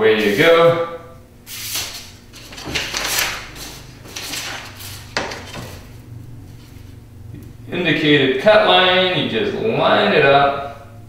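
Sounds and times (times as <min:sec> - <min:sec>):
paper pages rustling: 0:01.7 - 0:06.0
steel straight edge shifting: 0:01.8 - 0:06.0.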